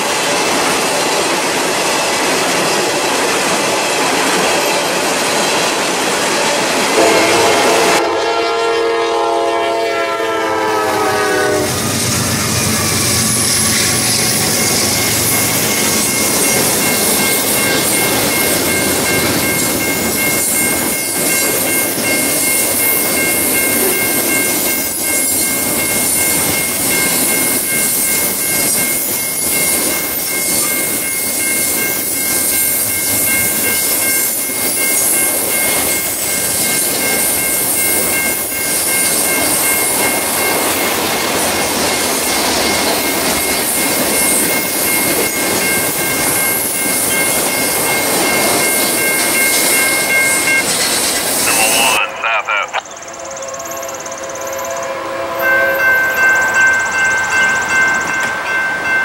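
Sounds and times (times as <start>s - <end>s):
freight train wheels rumbling: 0.0s - 59.0s
high-pitched squeal: 11.7s - 19.2s.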